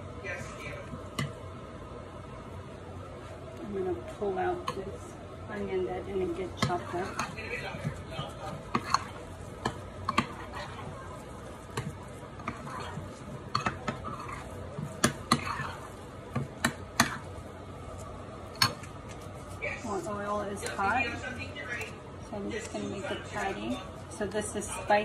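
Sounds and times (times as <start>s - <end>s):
metal spoon scraping glass bowl: 12.4s - 14.5s.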